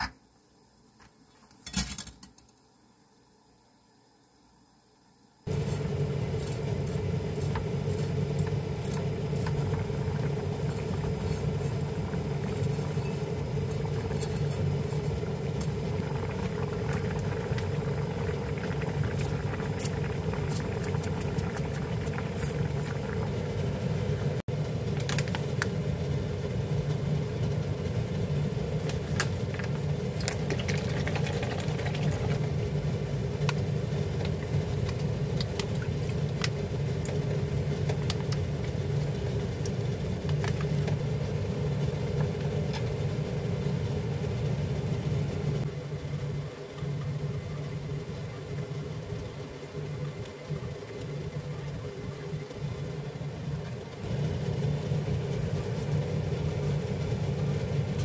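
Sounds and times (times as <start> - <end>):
water boiling with pops: 5.4 - 58.0.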